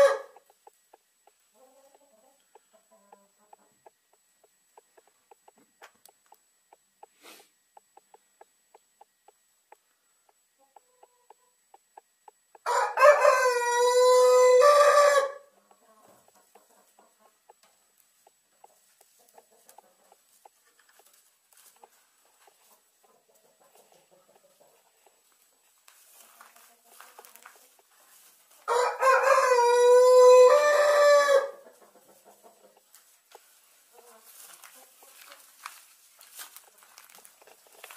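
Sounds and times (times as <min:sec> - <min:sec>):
rooster crowing: 0:00.0 - 0:00.4, 0:12.6 - 0:15.5, 0:28.7 - 0:31.6
chickens clucking: 0:00.0 - 0:37.9.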